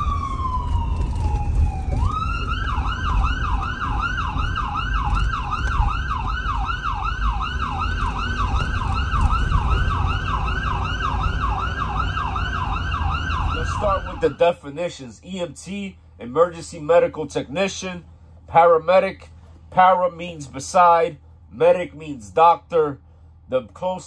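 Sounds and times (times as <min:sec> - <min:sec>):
ambulance siren wailing: 0:00.0 - 0:14.6
engine and road rumble: 0:00.0 - 0:24.0.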